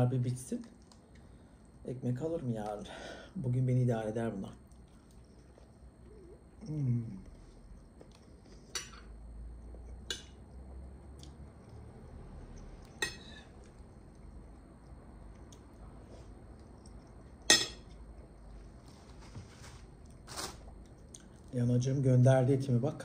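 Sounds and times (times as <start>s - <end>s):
fork clinking on ceramic plate: 17.5s - 17.8s.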